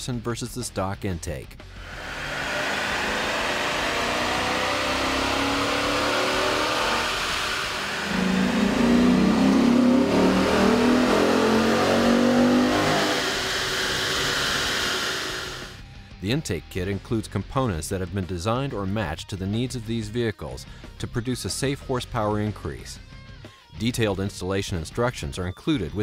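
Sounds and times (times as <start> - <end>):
car engine revving under load: 1.7 - 15.8.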